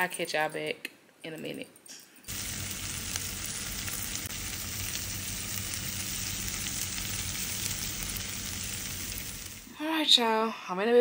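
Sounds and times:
steady hiss: 2.3 - 9.8.

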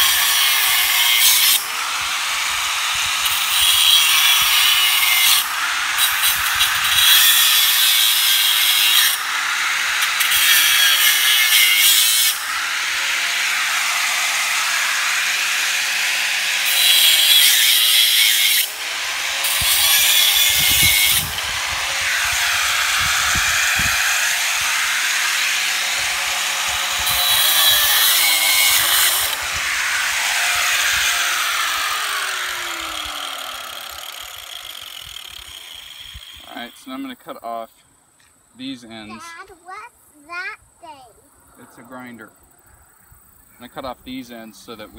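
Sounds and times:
angle grinder cutting steel wire: 0.0 - 36.8
grinder winding down: 0.0 - 36.8.

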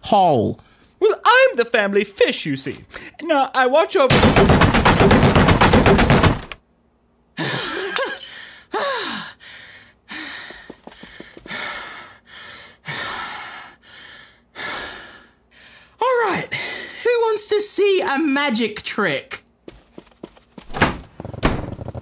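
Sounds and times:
hammer pounding rapidly: 4.1 - 6.6
heavy breathy panting with groans: 7.4 - 17.0.

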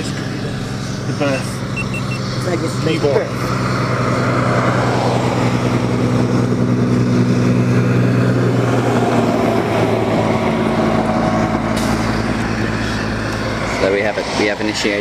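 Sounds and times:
vehicle engine idling: 0.0 - 4.0.

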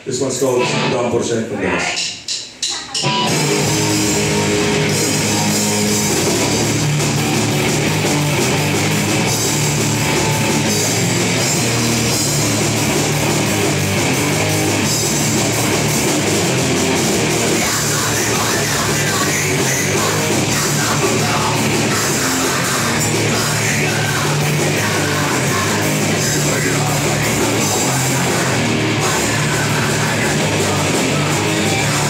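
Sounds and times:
thrash metal band playing: 0.3 - 32.0.

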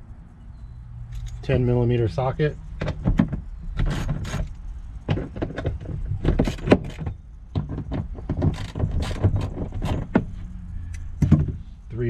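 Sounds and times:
ratchet clicking: 8.4 - 10.1.

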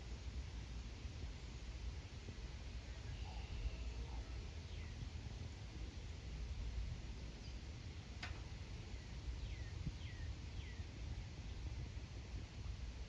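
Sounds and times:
low background rumble: 0.0 - 13.0
bird chirping: 8.9 - 10.8.

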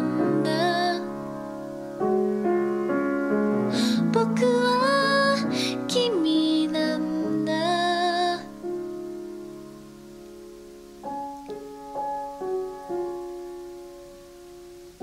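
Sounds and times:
woman singing with vibrato: 0.0 - 1.3, 3.8 - 8.6
piano ballad: 0.0 - 15.0.

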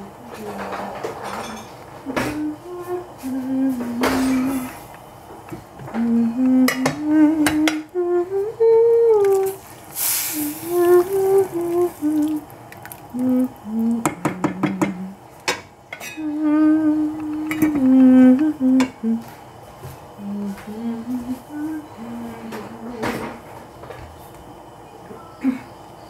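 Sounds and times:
person humming: 0.0 - 1.0, 2.0 - 4.9, 5.8 - 15.2, 16.1 - 19.3, 20.2 - 23.4.

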